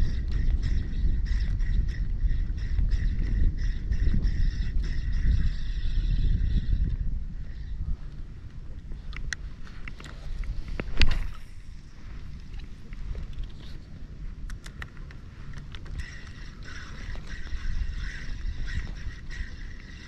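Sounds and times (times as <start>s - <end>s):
spinning reel whirring: 0.0s - 7.8s, 15.5s - 20.0s
wind rumble on microphone: 0.0s - 20.0s
water lapping: 15.9s - 20.0s.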